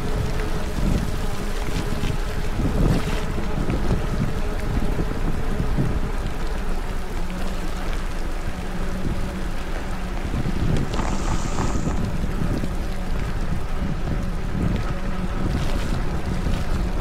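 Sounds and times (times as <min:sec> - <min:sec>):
wind rushing over microphone: 0:00.0 - 0:07.0, 0:08.5 - 0:17.0
rain noise: 0:00.0 - 0:17.0
short high hiss: 0:10.8 - 0:12.1.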